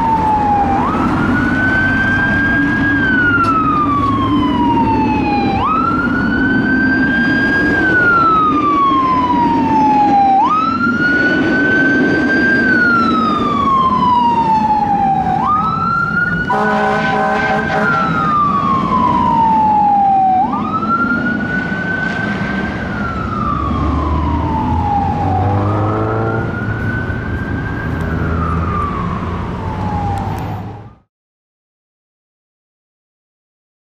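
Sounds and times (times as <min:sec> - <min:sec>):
fire truck siren wailing: 0:00.0 - 0:31.1
truck horn blast: 0:16.5 - 0:18.2.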